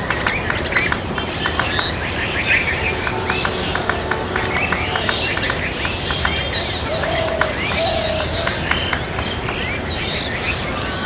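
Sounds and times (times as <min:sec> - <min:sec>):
small birds chirping: 0:00.0 - 0:11.0
dove cooing: 0:06.2 - 0:09.3.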